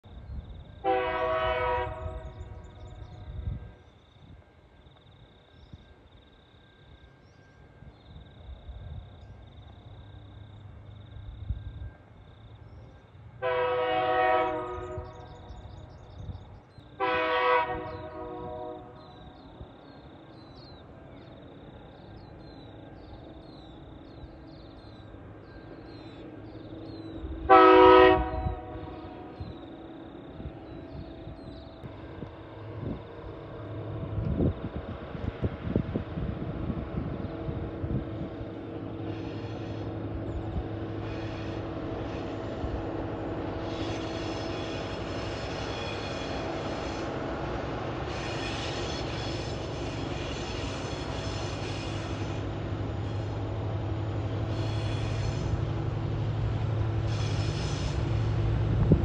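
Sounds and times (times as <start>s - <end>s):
locomotive air horn blasts: 0.8s - 2.6s, 13.4s - 15.4s, 17.0s - 19.1s, 27.5s - 29.4s
locomotive low rumble: 52.1s - 59.0s.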